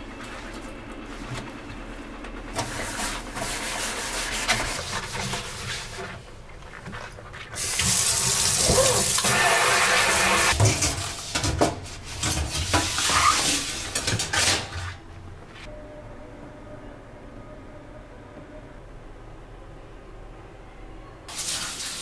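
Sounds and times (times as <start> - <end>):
tap water running into sink: 7.6 - 10.6.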